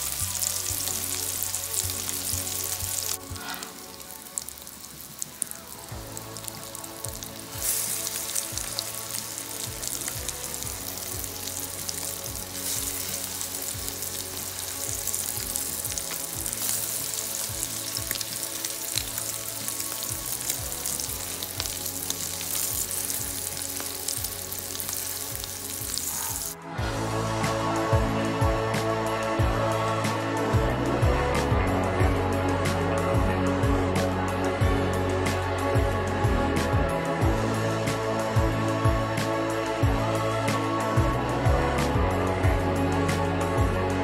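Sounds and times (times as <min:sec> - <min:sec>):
croquettes sizzling in a pan: 0:00.0 - 0:26.6.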